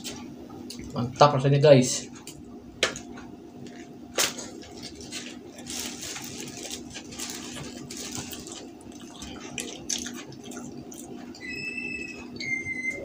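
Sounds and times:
faint steady hum: 0:00.0 - 0:13.0
person chewing food: 0:03.1 - 0:11.5
paper wrapper crinkling: 0:04.1 - 0:10.3
high whistling tones: 0:11.4 - 0:13.0.

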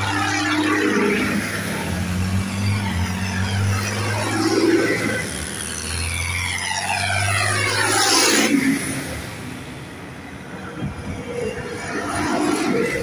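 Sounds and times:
tractor passing by: 0:00.0 - 0:09.4
distant engine: 0:00.0 - 0:13.0.

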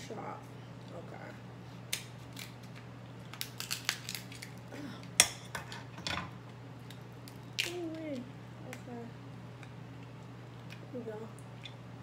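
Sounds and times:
scissors cracking crab shell: 0:01.9 - 0:05.4, 0:06.4 - 0:08.9.

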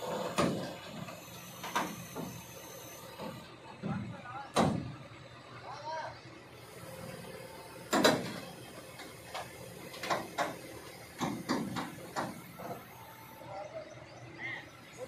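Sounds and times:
low engine rumble: 0:00.0 - 0:15.0
excavator metal clanks and knocks: 0:07.9 - 0:12.8.

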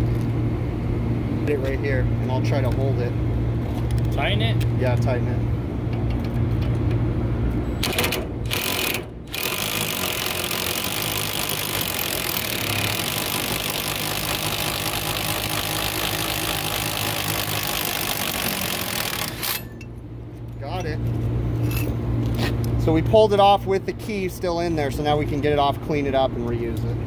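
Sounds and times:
impact wrench hammering: 0:07.8 - 0:19.9.

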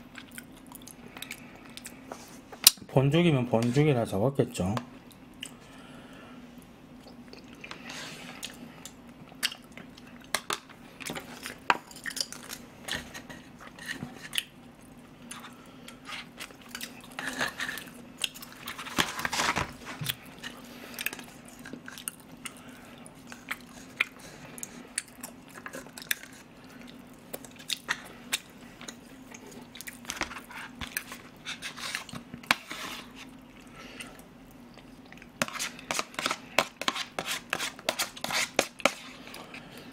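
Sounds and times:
metal spoon scraping plastic container: 0:35.4 - 0:39.1.

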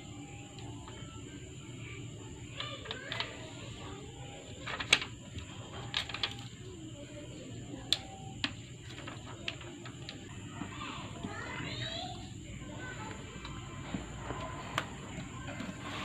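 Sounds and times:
plastic film crackling: 0:02.6 - 0:06.8.

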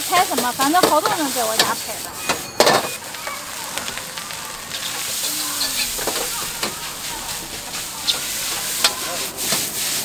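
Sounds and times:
food sizzling in a wok: 0:00.0 - 0:10.0
ladle clinking against wok: 0:00.8 - 0:04.0
metal ladle scraping a wok: 0:00.8 - 0:09.9.

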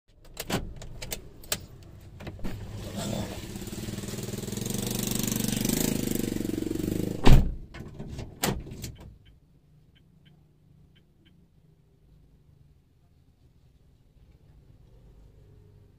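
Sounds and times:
engine running: 0:02.4 - 0:07.4
heavy thump: 0:07.1 - 0:07.6.

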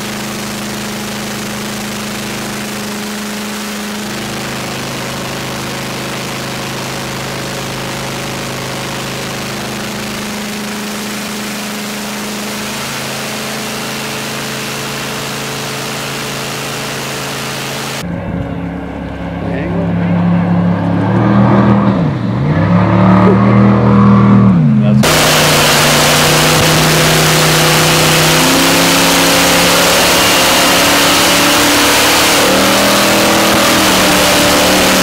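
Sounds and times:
boat engine running: 0:00.0 - 0:35.0
rushing water wake: 0:25.0 - 0:35.0.

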